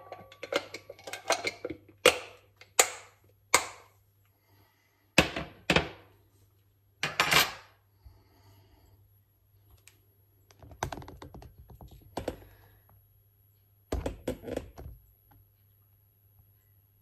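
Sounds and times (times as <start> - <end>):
kitchen items clicking and knocking: 0.0 - 3.9, 5.2 - 6.1, 7.0 - 7.7, 13.9 - 15.0.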